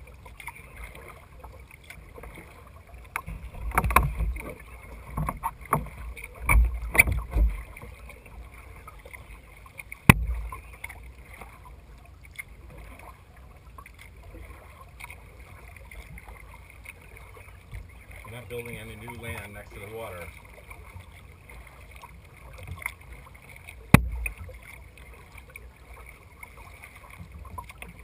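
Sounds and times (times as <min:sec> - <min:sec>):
paddle strokes with splashes: 0:00.0 - 0:28.0
water and hull noise: 0:00.0 - 0:28.0
knocks on plastic hull: 0:10.1 - 0:10.5, 0:23.9 - 0:24.4.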